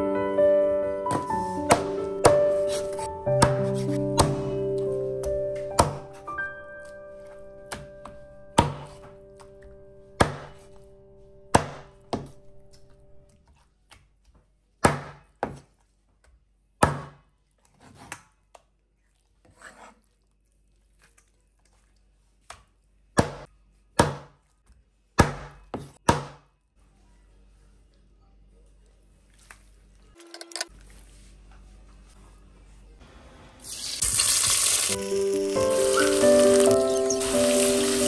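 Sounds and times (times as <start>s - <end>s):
knife chopping on cutting board: 1.1s - 4.4s, 5.7s - 6.2s, 10.2s - 10.7s.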